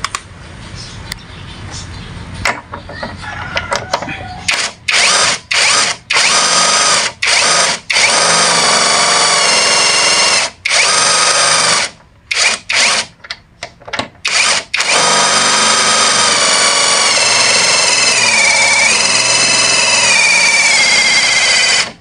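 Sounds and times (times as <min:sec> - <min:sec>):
impact wrench whining and hammering: 0:04.5 - 0:13.2, 0:14.0 - 0:22.0.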